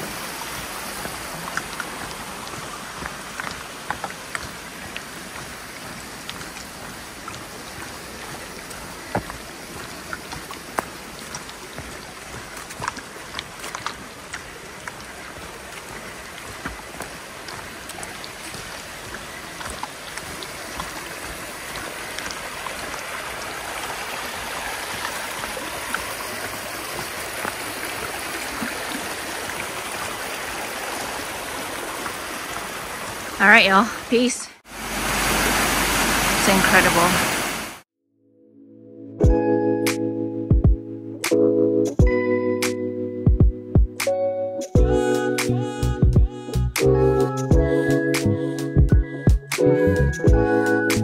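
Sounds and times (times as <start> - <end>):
stream rushing over rocks: 0.0 - 37.8.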